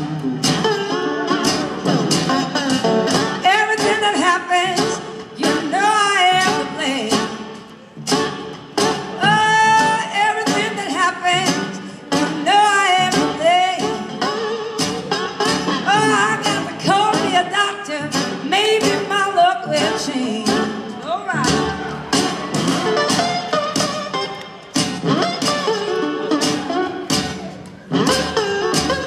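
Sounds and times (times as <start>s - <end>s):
acoustic guitars: 0.0s - 29.0s
upright bass: 0.0s - 29.0s
woman singing: 3.4s - 7.4s, 9.2s - 14.0s, 15.9s - 21.7s.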